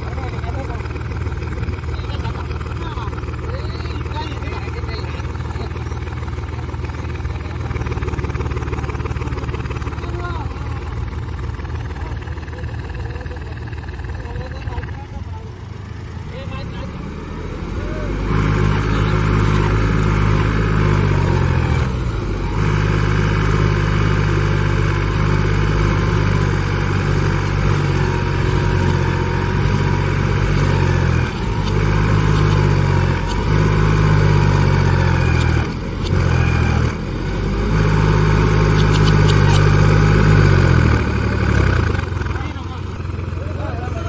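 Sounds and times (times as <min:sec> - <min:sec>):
tractor diesel engine revving: 0:00.0 - 0:44.0.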